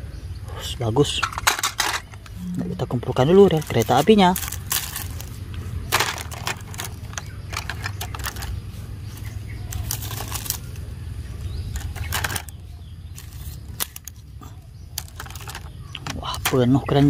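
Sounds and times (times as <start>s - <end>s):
plastic pieces clacking: 1.1s - 2.4s, 3.5s - 8.6s, 9.2s - 10.8s, 11.7s - 14.2s, 14.9s - 16.7s
leaves crackling: 2.3s - 16.8s.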